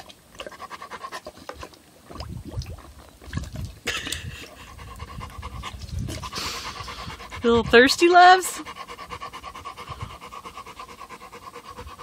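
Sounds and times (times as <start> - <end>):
water dripping: 0.0 - 4.5
dog lapping water: 0.0 - 12.0
dog panting: 0.4 - 1.7, 4.2 - 12.0.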